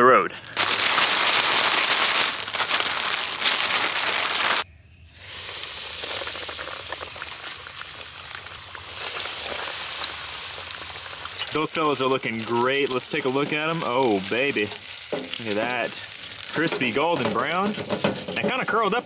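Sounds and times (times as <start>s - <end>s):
plastic bag shaken and crinkling: 0.3s - 4.6s
fish sizzling in hot oil: 0.6s - 18.5s.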